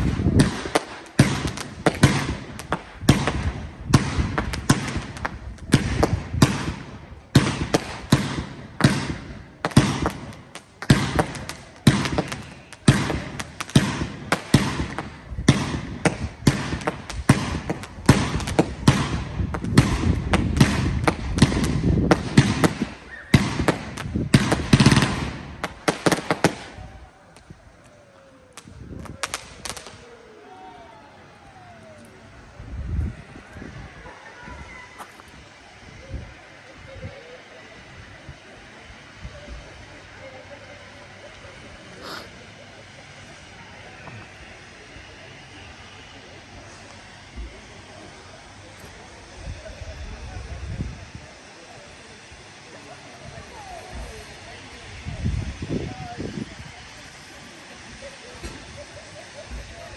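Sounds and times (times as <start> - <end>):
fireworks bangs: 0.0 - 27.6, 28.5 - 30.2
fireworks rumble: 0.0 - 59.9.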